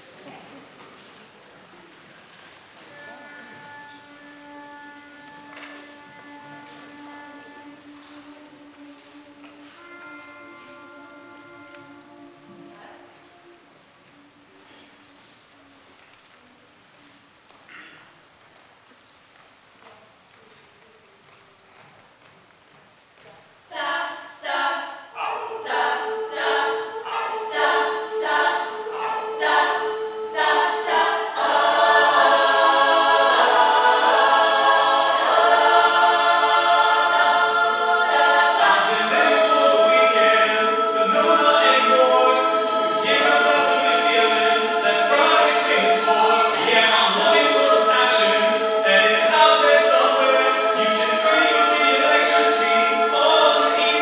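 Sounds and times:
a cappella choir singing: 0:02.9 - 0:14.7, 0:23.7 - 0:54.0.

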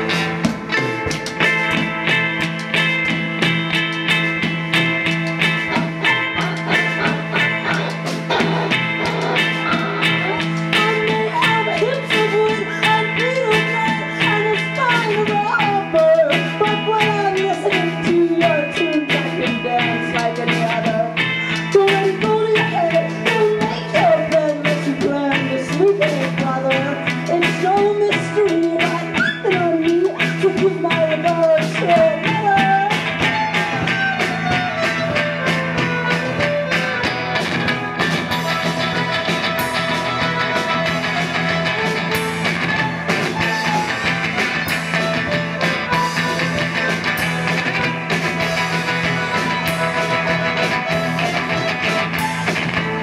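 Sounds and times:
guitar: 0:00.0 - 0:53.0
steady drum beat: 0:00.0 - 0:53.0
violin: 0:00.0 - 0:53.0
woman singing: 0:10.2 - 0:33.4.

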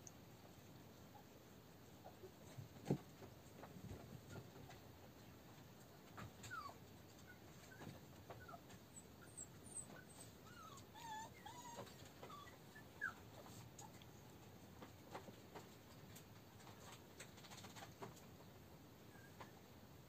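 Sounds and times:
puppies whimpering: 0:06.4 - 0:13.2.

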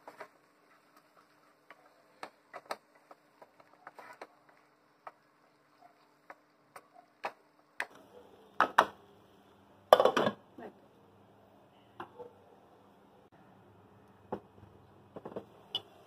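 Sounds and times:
masala frying in oil: 0:00.0 - 0:11.6.

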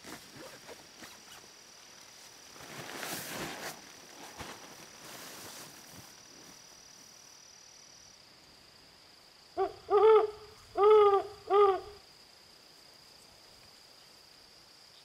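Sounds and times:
rustling of camping gear: 0:00.0 - 0:07.2.

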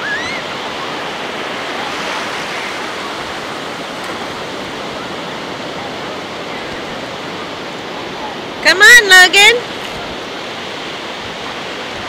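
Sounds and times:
ocean surf washing over shallows: 0:00.0 - 0:12.0.

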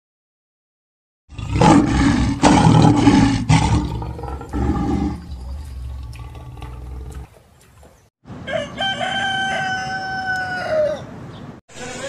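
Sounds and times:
lion roaring: 0:01.3 - 0:07.3.

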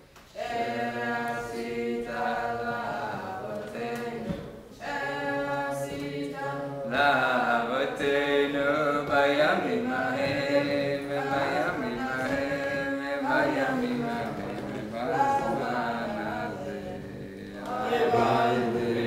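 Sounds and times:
voices singing slow chant: 0:00.0 - 0:19.0.

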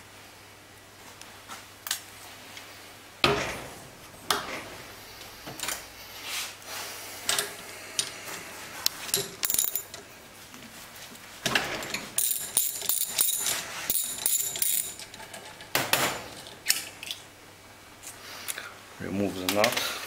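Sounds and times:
metal tools clicking and clinking: 0:09.1 - 0:10.0, 0:12.2 - 0:15.7.

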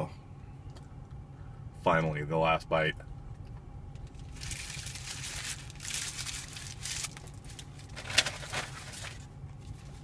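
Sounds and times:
paper rustling and crinkling: 0:04.2 - 0:10.0.

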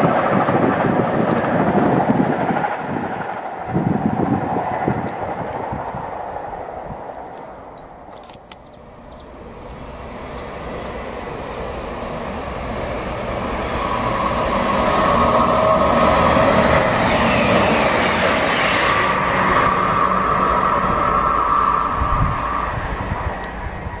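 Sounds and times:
diesel train passing: 0:00.0 - 0:24.0
steady high whine: 0:08.9 - 0:24.0.

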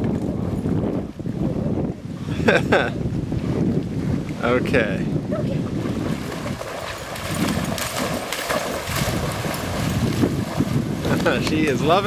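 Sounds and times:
wind rumbling on microphone: 0:00.0 - 0:12.0
dog splashing through water: 0:05.6 - 0:11.6.

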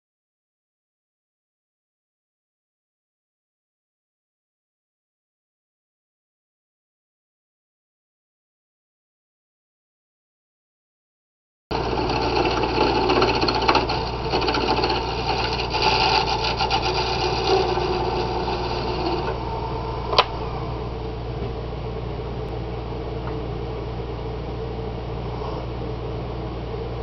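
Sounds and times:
tool scraping wood on lathe: 0:11.7 - 0:20.8
lathe humming: 0:11.7 - 0:22.6.

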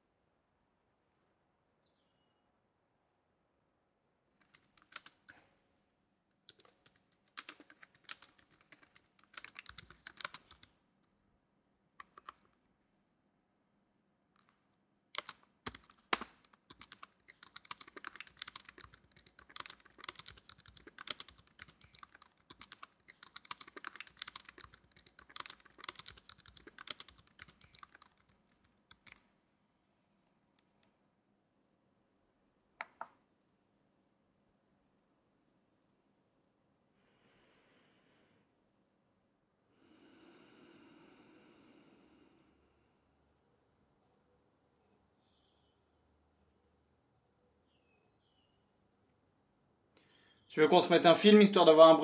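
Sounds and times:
typing on laptop keyboard: 0:04.4 - 0:05.4, 0:06.5 - 0:10.8, 0:12.0 - 0:12.5, 0:15.2 - 0:29.3.

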